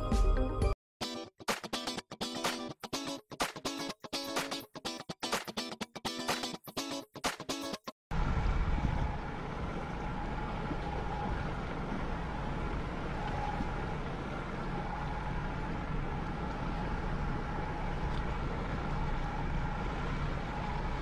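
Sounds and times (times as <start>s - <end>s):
faint motor whine: 8.1s - 21.0s
outboard motor rumbling: 8.1s - 21.0s.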